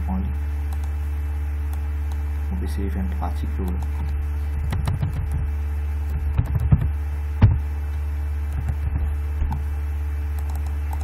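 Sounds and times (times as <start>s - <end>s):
low electrical hum: 0.0s - 11.0s
computer keyboard typing: 0.7s - 1.0s, 3.6s - 5.4s, 6.1s - 6.9s, 10.4s - 11.0s.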